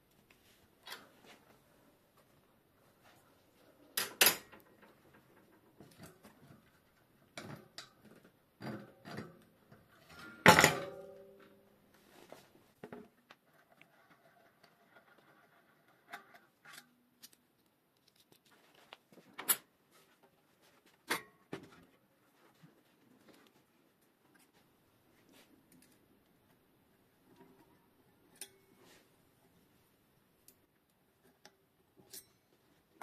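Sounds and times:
tools clicking and clinking: 31.4 - 32.6.

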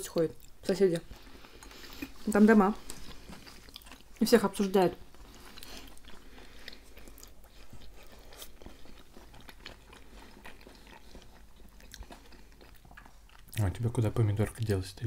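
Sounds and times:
close chewing with wet mouth clicks: 0.0 - 13.8.

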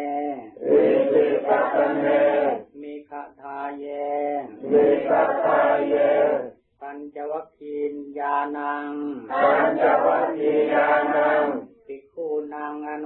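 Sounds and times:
congregation chanting: 0.3 - 2.8, 3.8 - 6.6, 9.2 - 11.7.

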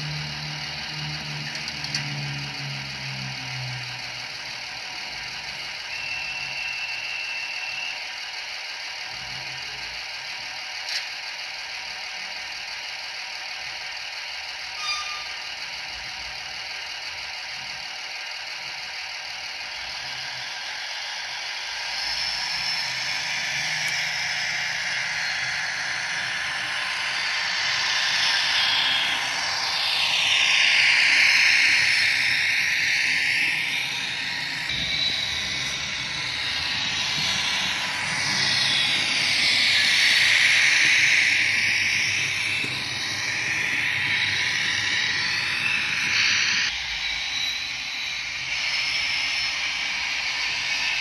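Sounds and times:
model train running hiss: 0.0 - 51.0.

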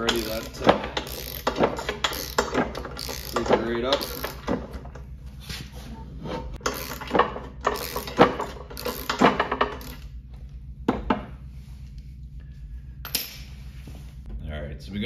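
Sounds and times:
socket ratchet clicking: 0.0 - 4.4, 6.6 - 7.1, 7.7 - 10.0.

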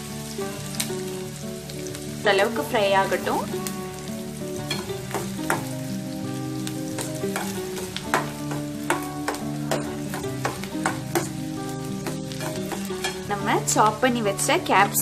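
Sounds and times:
onions sizzling in oil: 0.0 - 15.0
spatula scraping and tapping pan: 4.6 - 6.0, 6.6 - 14.0.

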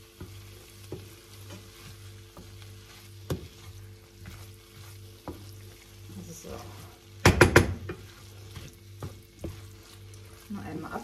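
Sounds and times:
food sizzling faintly: 0.0 - 11.0
wooden spoon scraping pan: 0.0 - 11.0
spoon knocking against pan: 7.2 - 8.1.

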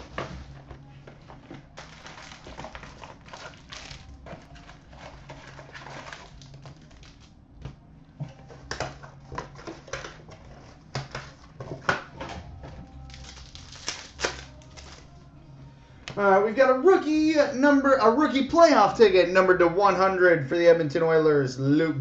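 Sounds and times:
card pack wrappers crinkling: 1.7 - 7.3, 13.0 - 15.1.

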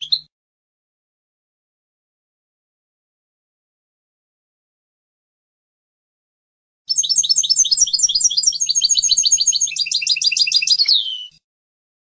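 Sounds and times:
goldfinch singing: 6.9 - 11.4.

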